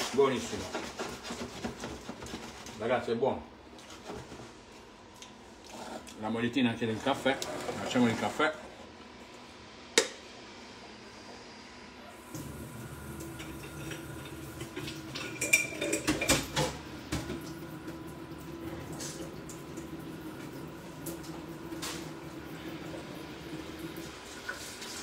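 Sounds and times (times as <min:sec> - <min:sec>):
metal and crockery clinking: 0:15.1 - 0:16.7.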